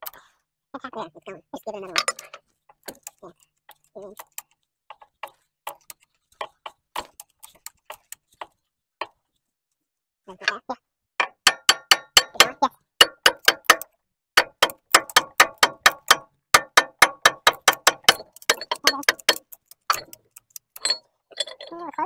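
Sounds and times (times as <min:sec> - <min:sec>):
hammer striking steel: 0:11.2 - 0:21.0.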